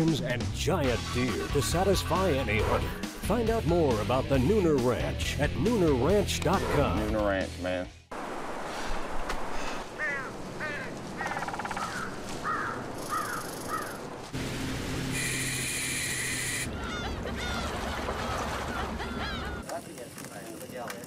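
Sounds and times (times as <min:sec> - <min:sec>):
birds calling: 0:09.5 - 0:14.3, 0:15.2 - 0:19.7.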